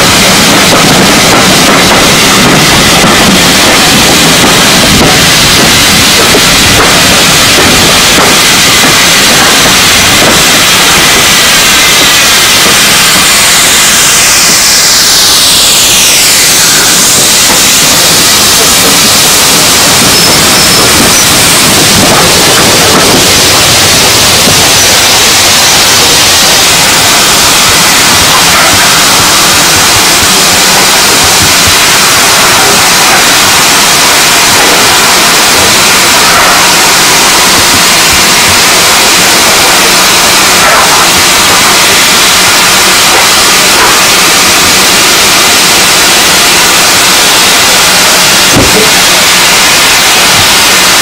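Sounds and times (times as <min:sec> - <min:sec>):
steam locomotive hissing steam: 0:00.0 - 0:51.0.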